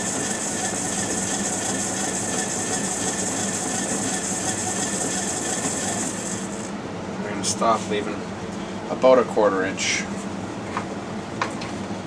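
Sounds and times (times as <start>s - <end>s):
lathe motor hum: 0.0s - 6.7s.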